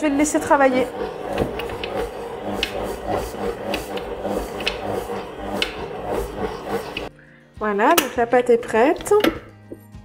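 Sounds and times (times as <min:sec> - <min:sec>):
stand mixer motor hum: 0:00.0 - 0:07.1.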